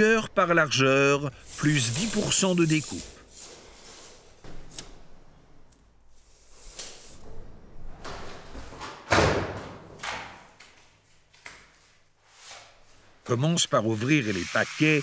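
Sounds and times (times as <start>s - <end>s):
thump on concrete floor: 8.8s - 10.4s.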